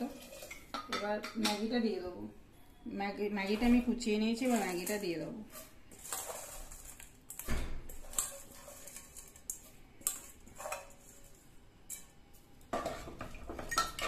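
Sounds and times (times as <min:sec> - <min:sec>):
dry noodles rustling into pot: 0:00.0 - 0:00.8, 0:03.4 - 0:12.0
ladle scraping metal pot: 0:00.0 - 0:01.6, 0:03.4 - 0:12.1, 0:12.7 - 0:14.0.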